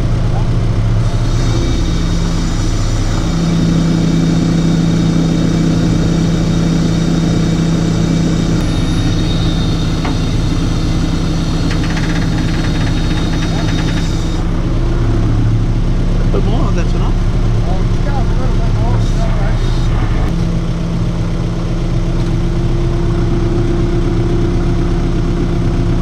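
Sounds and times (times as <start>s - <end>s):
truck engine running: 0.0s - 26.0s
rapid ticking: 11.2s - 14.4s.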